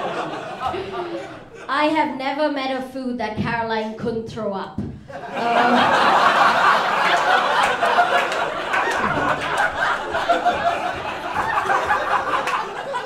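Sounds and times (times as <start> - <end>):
audience laughing: 0.0 - 1.7, 5.1 - 13.0.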